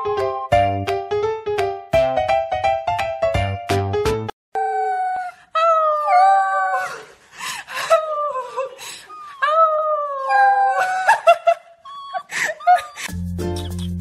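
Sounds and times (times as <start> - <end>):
puppy howling: 4.6 - 7.0, 9.1 - 11.1, 11.9 - 13.1.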